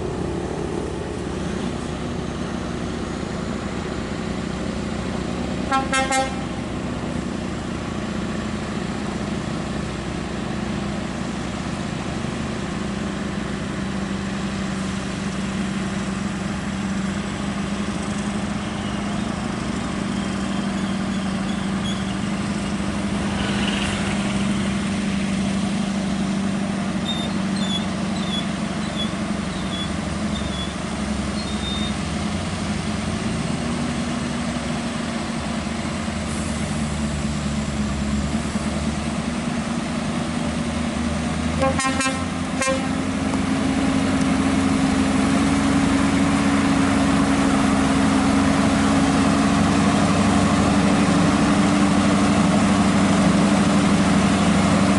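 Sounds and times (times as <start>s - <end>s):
diesel truck engines running: 0.0s - 54.9s
truck horn toot: 5.7s - 6.6s, 41.6s - 43.2s.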